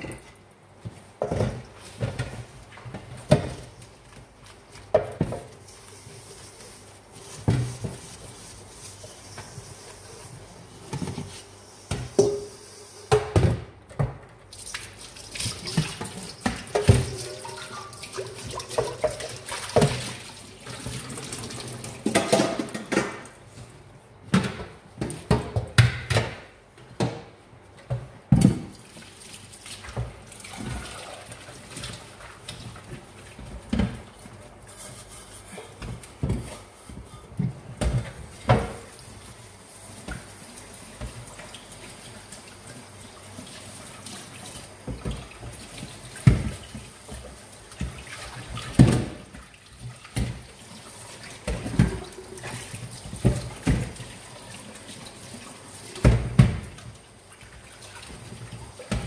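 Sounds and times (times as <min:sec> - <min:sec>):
tap water running and splashing: 0:14.5 - 0:23.4, 0:28.4 - 0:34.6, 0:35.8 - 0:59.0
metal pots clanking in sink: 0:16.4 - 0:20.1, 0:22.0 - 0:23.4.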